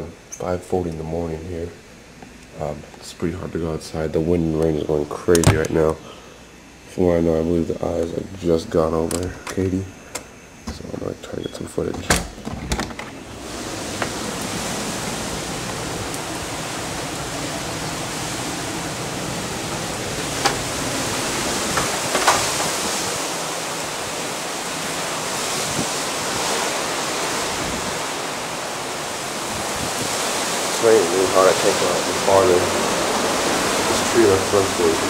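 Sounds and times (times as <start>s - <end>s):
wind: 0.0s - 35.0s
heavy rain: 13.2s - 35.0s.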